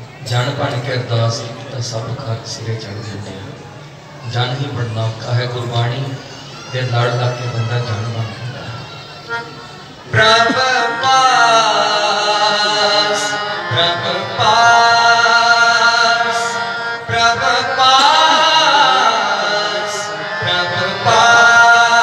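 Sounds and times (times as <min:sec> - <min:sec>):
men chanting a hymn: 0:10.0 - 0:22.0.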